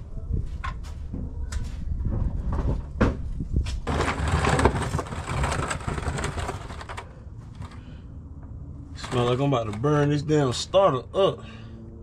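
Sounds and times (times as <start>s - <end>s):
creeper rolling and scraping: 3.8s - 8.0s, 8.8s - 10.7s.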